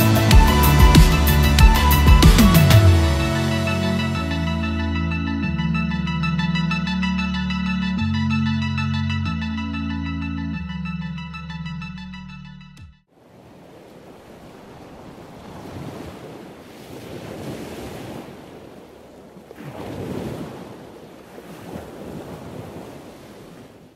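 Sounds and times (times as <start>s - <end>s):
background music: 0.0s - 13.0s
ocean waves washing in: 13.1s - 23.9s.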